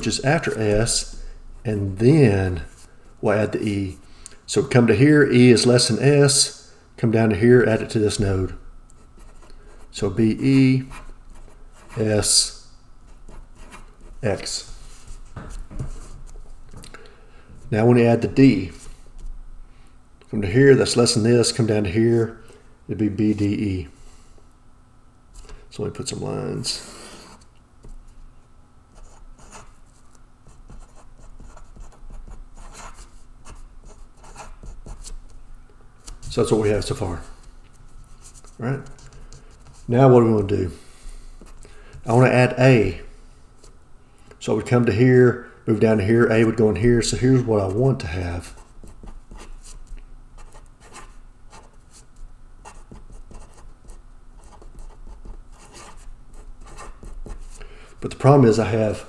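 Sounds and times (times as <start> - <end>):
marker scratching on paper: 13.2 - 16.5, 29.0 - 35.2, 48.4 - 57.6.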